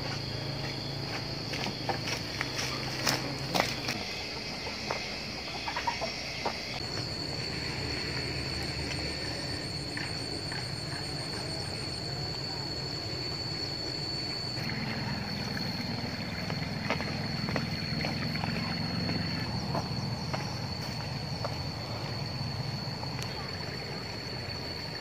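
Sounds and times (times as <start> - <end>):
footsteps on a path: 0.0 - 4.0, 14.7 - 23.3
high-pitched insect drone: 0.0 - 25.0
faint chicken clucking: 4.0 - 6.8.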